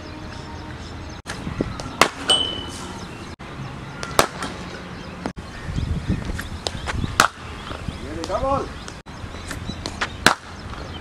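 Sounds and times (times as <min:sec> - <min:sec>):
cricket bat striking ball: 0:01.9 - 0:02.6, 0:04.0 - 0:04.5, 0:07.2 - 0:07.4, 0:10.2 - 0:10.5.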